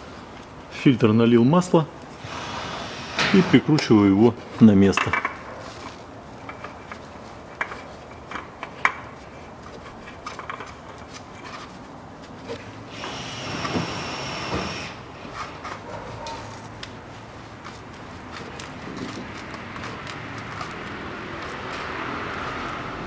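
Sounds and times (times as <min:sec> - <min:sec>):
oil filter scraping on threads: 0:05.6 - 0:14.3, 0:16.5 - 0:23.0
rubbing sound: 0:15.2 - 0:23.0.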